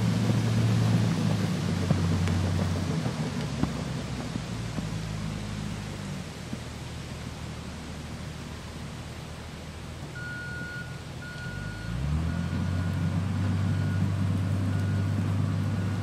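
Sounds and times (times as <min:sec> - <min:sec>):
low engine hum: 0:00.0 - 0:16.0
reversing alarm beeps: 0:10.2 - 0:13.1, 0:13.7 - 0:14.1.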